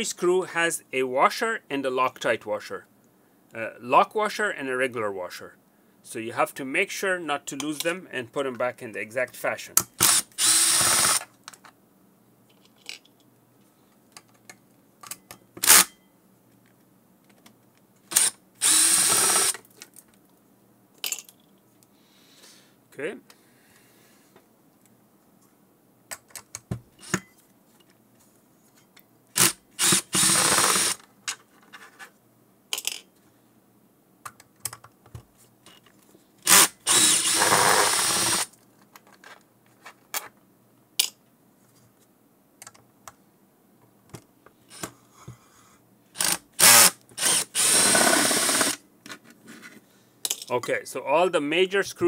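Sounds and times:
drill-driver removing screws: 10.0 - 11.3, 18.1 - 19.6, 29.4 - 31.0, 36.4 - 38.5, 46.2 - 48.8.

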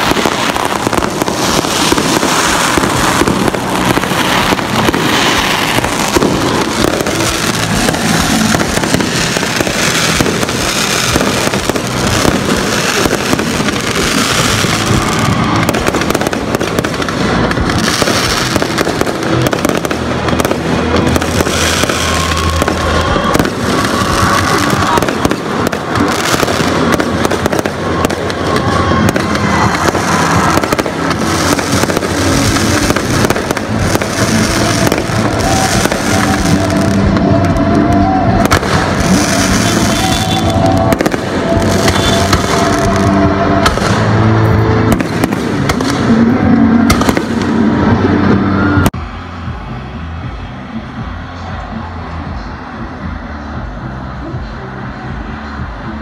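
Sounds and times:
fireworks bursting and crackling: 0.0 - 56.0.

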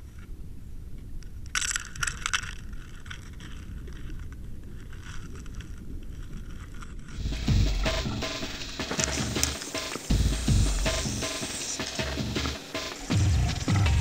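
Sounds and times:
clicks and crackles: 0.0 - 7.2, 8.0 - 10.1.

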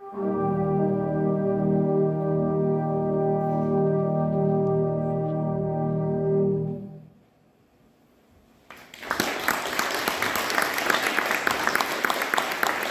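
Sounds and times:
brass band chord: 0.0 - 7.1
audience applause: 8.7 - 12.9.

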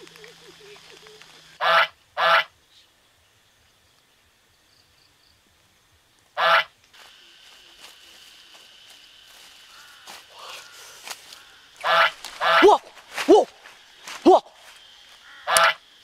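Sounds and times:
goose honking: 0.0 - 2.5, 6.4 - 6.7, 11.4 - 13.4, 15.2 - 15.8.

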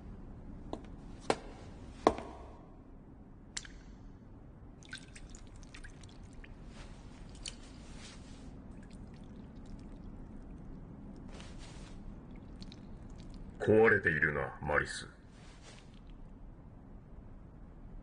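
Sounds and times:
liquid dripping: 3.5 - 4.0, 4.8 - 13.6.

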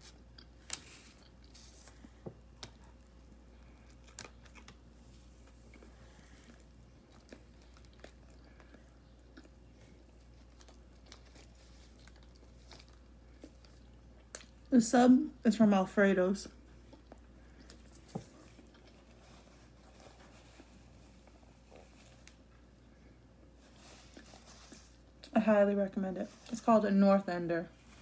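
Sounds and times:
bread roll being torn: 0.0 - 14.6
person chewing sandwich: 0.0 - 14.7, 16.6 - 25.3.

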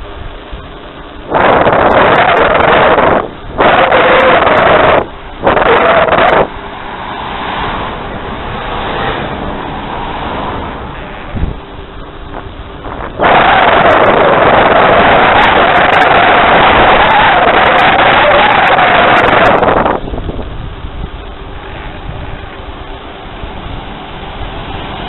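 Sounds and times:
wind rushing on microphone: 0.0 - 25.0
car passing by: 6.1 - 11.2, 23.1 - 25.0.

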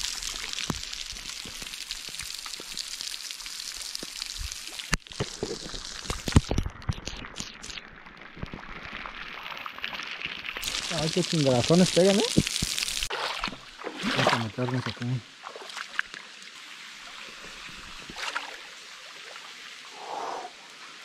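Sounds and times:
water falling like rain: 0.0 - 21.0
heavy water drops striking: 10.6 - 15.2.

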